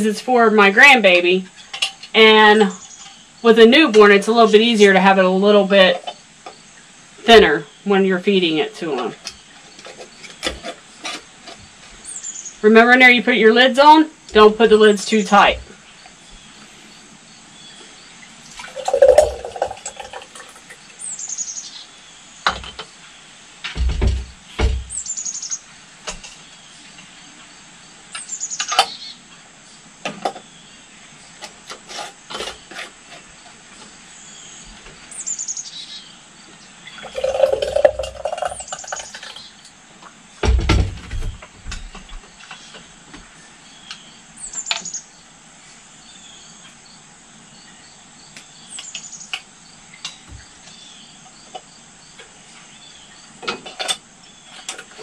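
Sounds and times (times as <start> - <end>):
birds chirping: 0.0 - 25.7, 34.2 - 39.7
thick liquid pouring: 18.5 - 20.9, 37.0 - 39.3
glass jars clinking: 18.7 - 20.4, 37.0 - 39.0.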